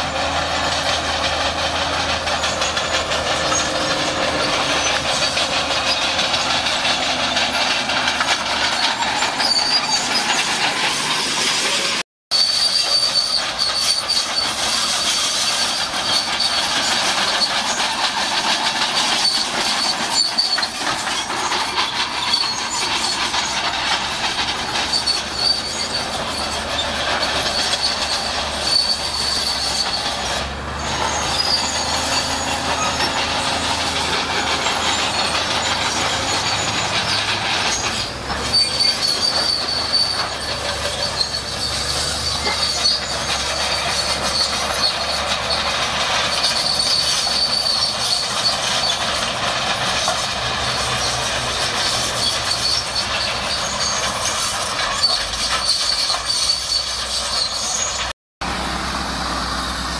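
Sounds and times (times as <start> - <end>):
bulldozer tracks clanking and squealing: 0.0 - 59.9
diesel engine running: 0.0 - 59.9.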